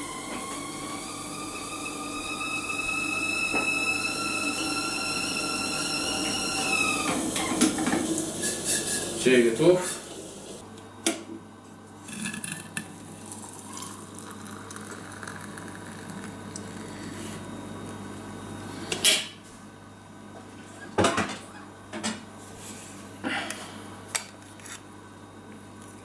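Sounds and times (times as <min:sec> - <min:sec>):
water pouring into a glass: 0:12.1 - 0:17.0.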